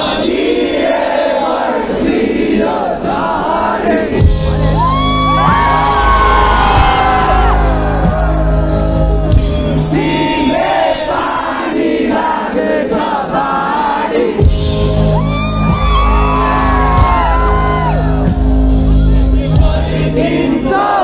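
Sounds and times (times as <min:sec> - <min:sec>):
crowd singing and shouting: 0:00.0 - 0:21.0
live band music: 0:04.2 - 0:10.5, 0:14.4 - 0:20.6.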